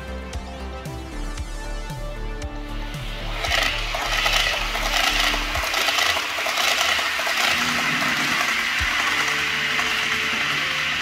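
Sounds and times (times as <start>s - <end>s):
model train motor whirring: 3.2s - 11.0s
model train wheels rattling: 3.4s - 11.0s.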